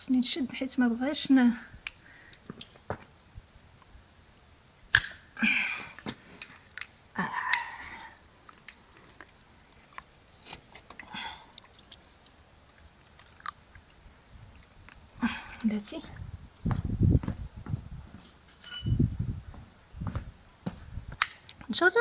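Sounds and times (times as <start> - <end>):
scraping and handling noise: 8.5 - 11.0.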